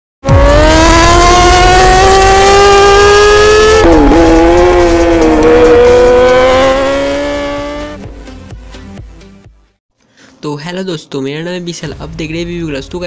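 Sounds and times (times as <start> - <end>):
motorcycle engine revving high: 0.2 - 8.2.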